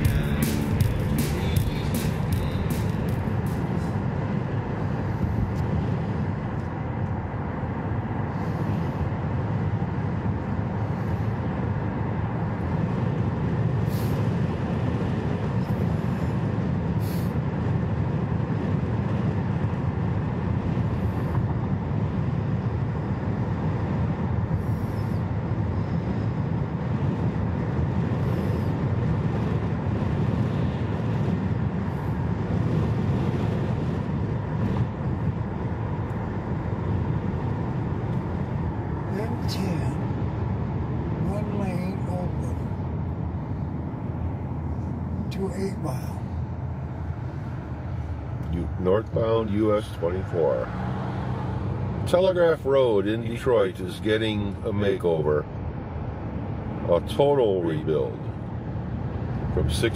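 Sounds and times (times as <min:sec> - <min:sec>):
car road and engine noise: 0:00.0 - 0:59.9.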